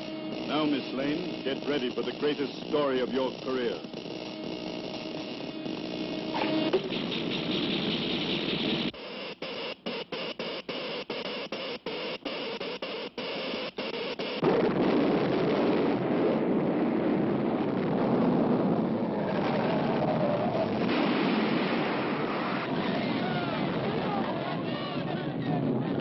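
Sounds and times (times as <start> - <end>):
loud continuous rumbling: 0.0 - 9.0, 14.4 - 26.0
cartoon machine chattering pulses: 0.0 - 14.5.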